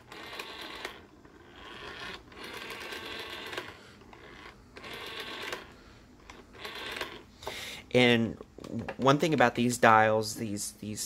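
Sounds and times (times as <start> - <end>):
rotary telephone dial whirring clicks: 0.0 - 7.3.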